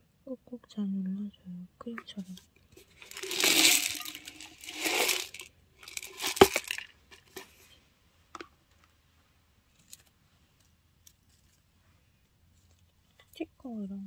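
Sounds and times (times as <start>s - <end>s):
rustle of small objects: 2.2s - 7.8s, 9.6s - 13.4s.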